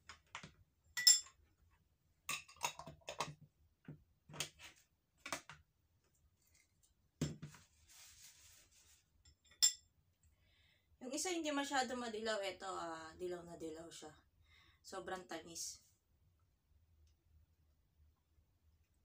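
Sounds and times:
metal cutlery clinking on bowls: 1.0s - 1.4s
paper tissue rustling: 7.6s - 9.1s.

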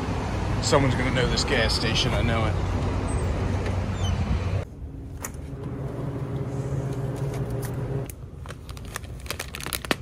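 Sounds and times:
outdoor traffic noise: 0.0s - 10.0s
low mechanical hum: 2.6s - 9.4s.

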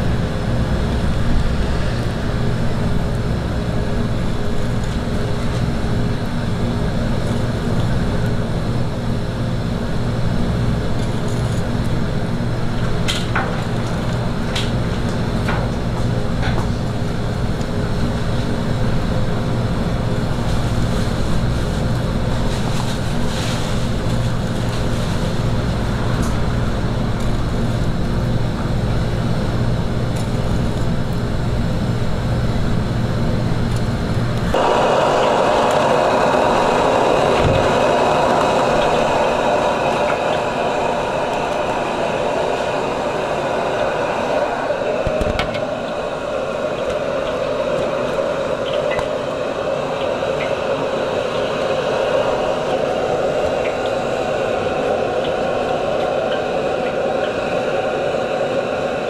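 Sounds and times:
kitchen equipment roaring: 0.0s - 59.0s
hissing roar: 34.5s - 59.0s.

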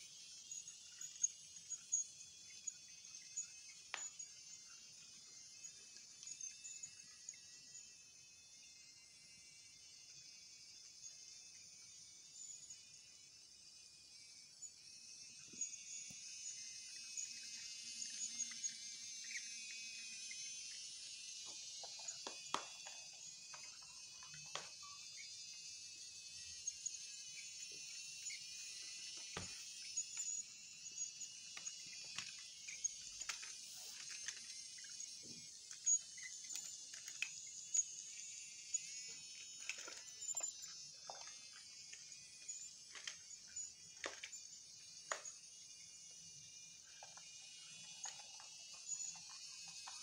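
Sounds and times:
toy train motor whirring: 0.0s - 50.0s.

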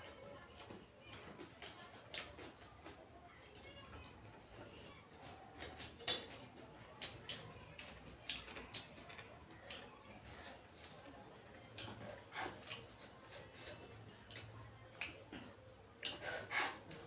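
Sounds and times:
eating mouth sounds: 11.6s - 17.0s.

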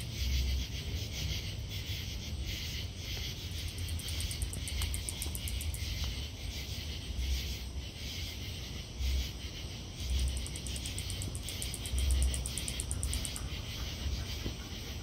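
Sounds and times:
insect chorus: 0.0s - 15.0s
katydid clicking: 3.1s - 6.4s, 10.1s - 14.4s.

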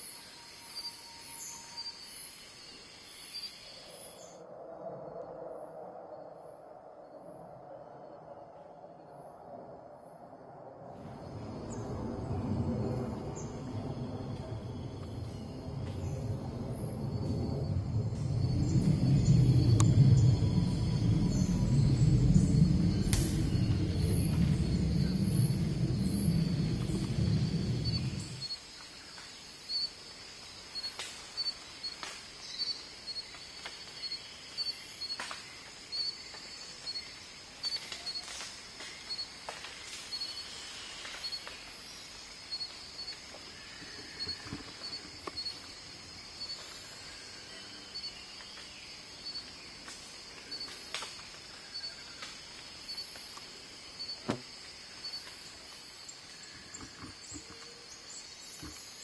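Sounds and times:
high insect chirping: 0.0s - 4.4s, 11.0s - 59.0s
low rumble: 10.9s - 28.6s.

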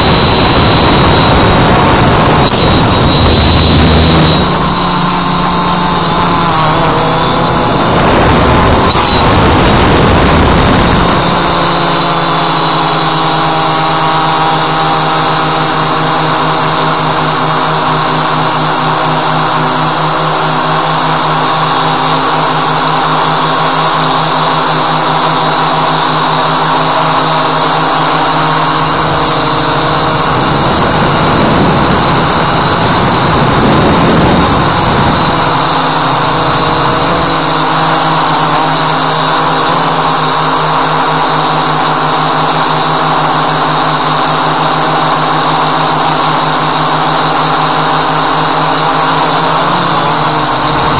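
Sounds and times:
rushing noise: 0.0s - 14.3s
drone propellers buzzing: 0.0s - 50.9s.

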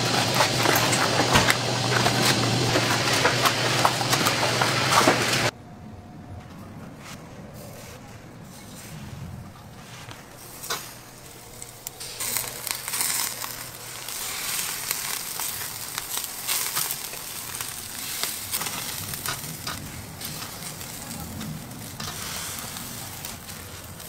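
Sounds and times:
charcoal crackles and pops: 0.0s - 5.5s, 10.1s - 24.0s
meat sizzling on grill: 0.0s - 5.5s, 10.4s - 24.0s.

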